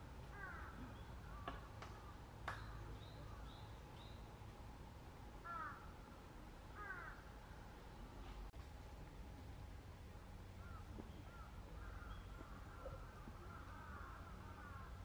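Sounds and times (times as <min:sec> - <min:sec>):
crow cawing: 0:00.3 - 0:01.5, 0:05.4 - 0:05.9, 0:06.8 - 0:07.2, 0:12.7 - 0:15.0.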